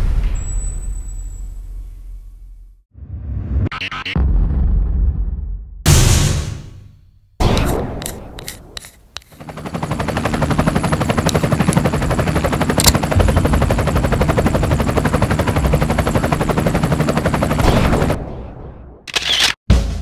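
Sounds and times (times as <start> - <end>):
sharp click: 7.4 - 9.4.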